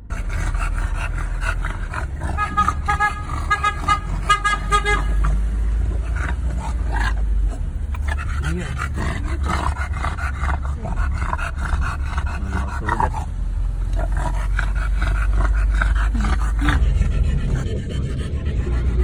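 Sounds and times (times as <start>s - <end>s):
car low rumble: 0.0s - 19.0s
dog panting: 0.0s - 19.0s.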